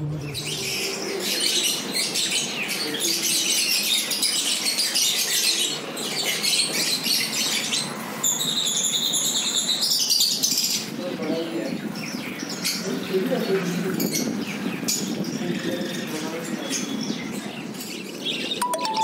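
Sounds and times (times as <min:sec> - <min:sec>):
finches chirping and twittering: 0:00.2 - 0:19.0
steady high bird notes: 0:18.6 - 0:19.0.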